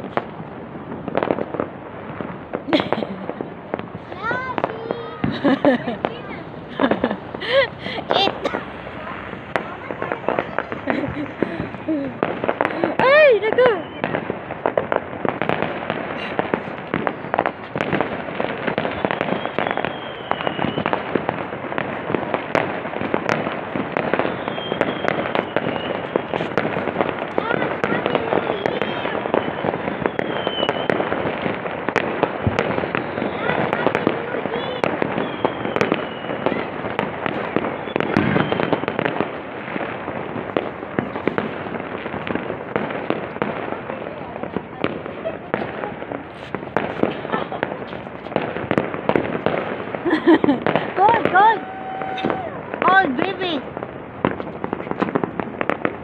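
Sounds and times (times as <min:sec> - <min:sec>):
firecrackers popping and banging: 0:00.0 - 0:56.0
falling firework whistle: 0:04.6 - 0:14.3, 0:16.9 - 0:18.0, 0:18.6 - 0:21.3, 0:24.0 - 0:27.0, 0:27.8 - 0:31.7, 0:32.5 - 0:39.4, 0:50.1 - 0:52.8.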